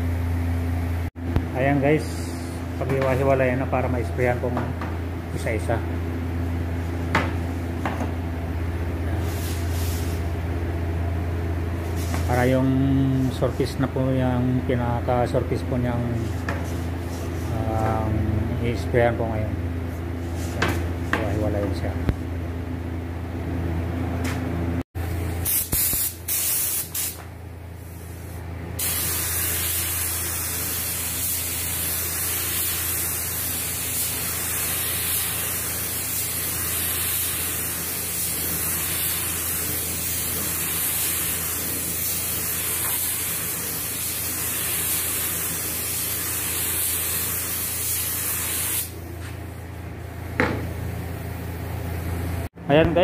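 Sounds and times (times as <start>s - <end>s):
spray gun hissing: 9.2s - 10.3s, 25.4s - 27.2s, 27.8s - 49.0s.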